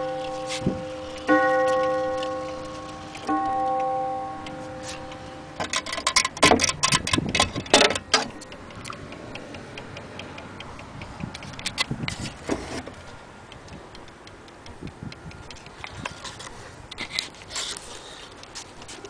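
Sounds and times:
clock ticking: 0:00.0 - 0:12.2, 0:12.9 - 0:17.2
knocks and rattles of pendulum rods: 0:05.0 - 0:09.0.

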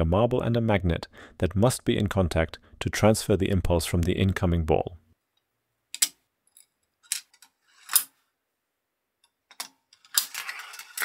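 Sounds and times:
steel marble rolling on rails: 0:10.0 - 0:11.0.

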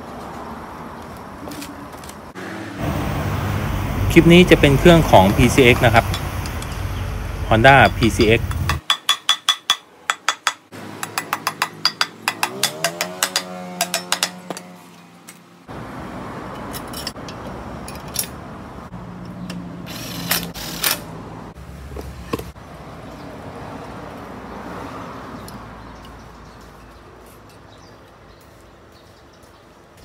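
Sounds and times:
metal parts clinking: 0:16.6 - 0:18.4.

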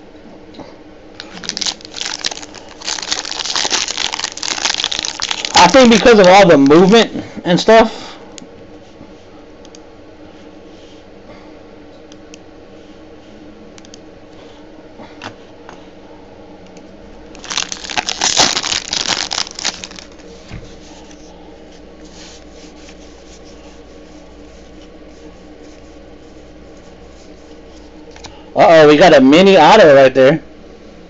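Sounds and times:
foil wrapper crinkling and tearing: 0:01.2 - 0:06.9, 0:17.4 - 0:20.2.

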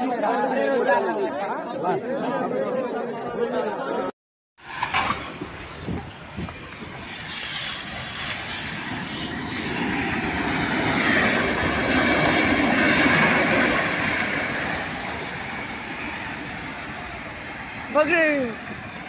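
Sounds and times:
freight train rumbling: 0:04.6 - 0:19.0.

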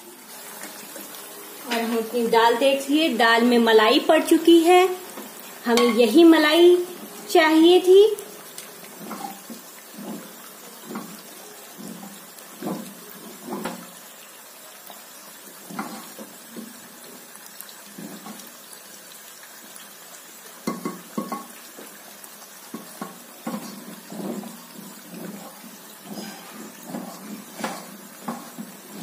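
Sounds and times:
faint sizzle of deep-frying oil: 0:00.0 - 0:29.0
wooden spoon stirring thick lentils: 0:22.8 - 0:29.0.

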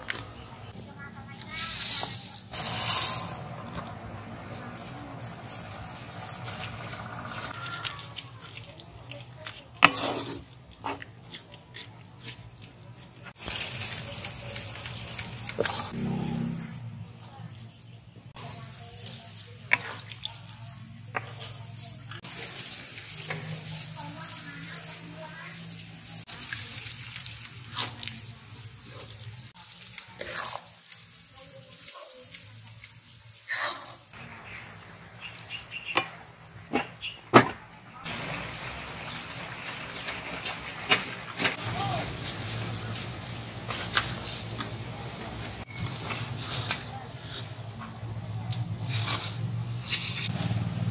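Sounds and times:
spatula scraping rice in wok: 0:01.6 - 0:03.6, 0:09.2 - 0:11.1, 0:18.3 - 0:34.2, 0:45.6 - 0:47.7, 0:48.6 - 0:50.5
liquid pouring hiss: 0:01.8 - 0:03.8, 0:13.4 - 0:15.7, 0:38.1 - 0:41.5
wooden spatula scraping metal pan: 0:09.5 - 0:10.5, 0:18.3 - 0:26.3, 0:48.7 - 0:50.4.

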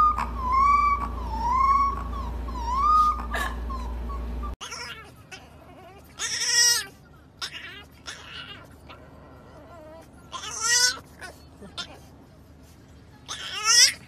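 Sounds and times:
puppy howling: 0:00.0 - 0:11.0
puppy whining: 0:00.0 - 0:12.2, 0:13.2 - 0:14.0.

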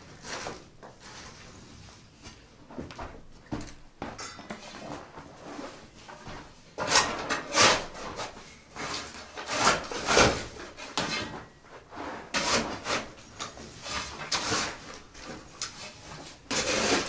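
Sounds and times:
shovel scraping into stony soil: 0:15.8 - 0:17.0.

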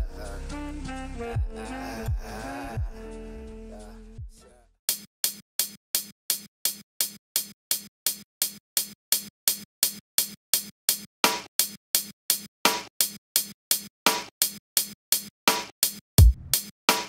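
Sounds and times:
hi-hat loop: 0:00.0 - 0:03.1.

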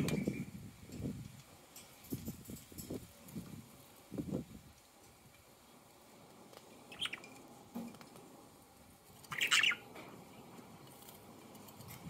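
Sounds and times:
budgerigars chirping: 0:06.9 - 0:07.3, 0:09.3 - 0:09.9.

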